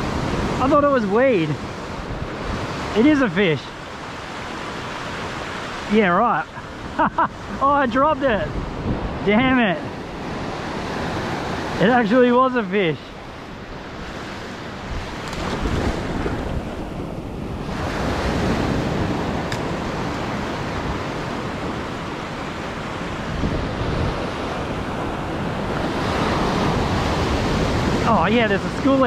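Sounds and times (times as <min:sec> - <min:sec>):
wind buffeting microphone: 0:06.6 - 0:11.8, 0:13.1 - 0:29.0
surf breaking on beach: 0:08.5 - 0:29.0.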